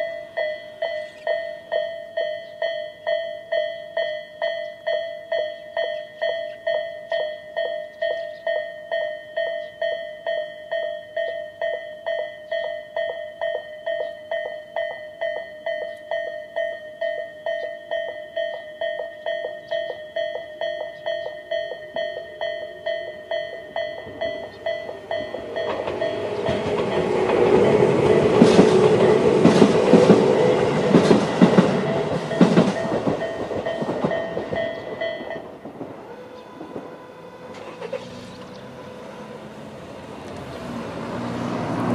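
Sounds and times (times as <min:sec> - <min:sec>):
level-crossing warning bell: 0:00.0 - 0:40.1
train wheels clattering over rails: 0:20.4 - 0:38.6.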